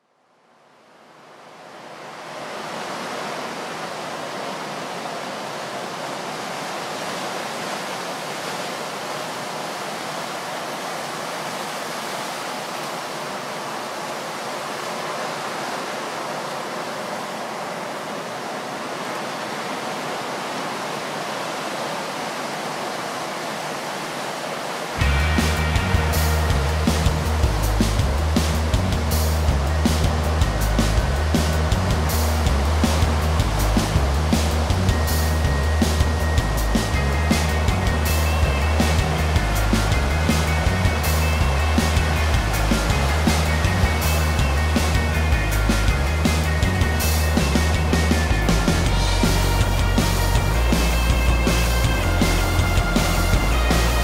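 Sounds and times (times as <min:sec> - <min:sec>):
heavy ocean surf roaring: 0:00.9 - 0:54.0
music with bass line: 0:25.0 - 0:54.0.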